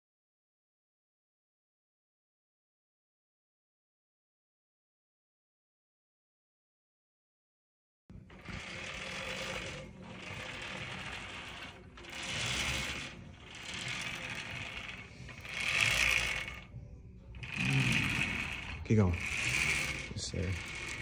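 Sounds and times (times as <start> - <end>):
roller chains running over sprockets: 8.3 - 16.7, 17.3 - 21.0.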